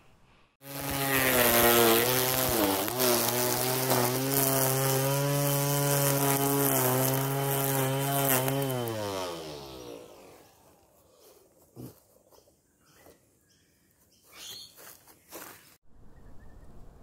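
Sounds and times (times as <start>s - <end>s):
electric motor running: 0.6s - 10.8s.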